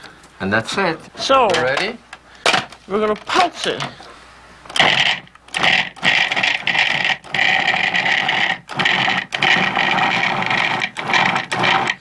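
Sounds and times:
food processor motor pulsing: 0:04.7 - 0:12.0.

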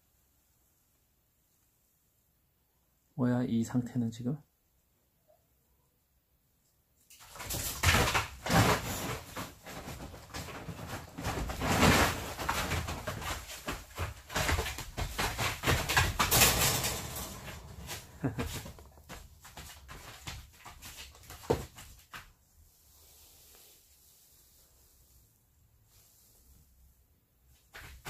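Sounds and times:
dogs scuffling on plastic tarp: 0:07.3 - 0:22.2.

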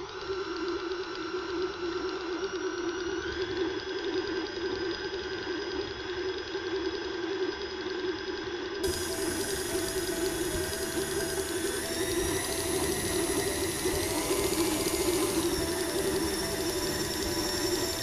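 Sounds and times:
stand mixer beating dough: 0:08.8 - 0:18.0.

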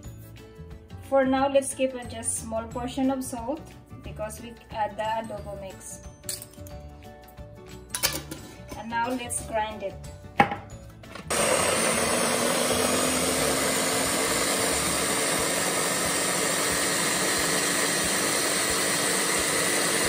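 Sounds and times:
electric food chopper grinding: 0:11.1 - 0:20.0.

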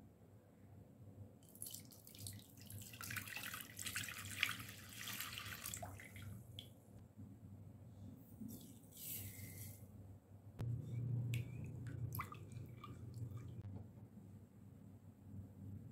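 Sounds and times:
milk dripping: 0:11.3 - 0:13.7.

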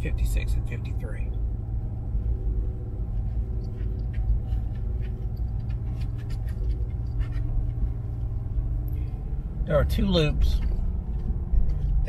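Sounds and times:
vehicle rumble from inside cabin: 0:00.0 - 0:12.0.

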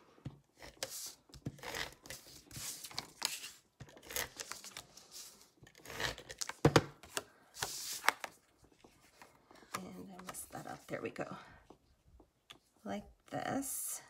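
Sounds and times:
cardstock rustling and sliding: 0:00.6 - 0:09.3.

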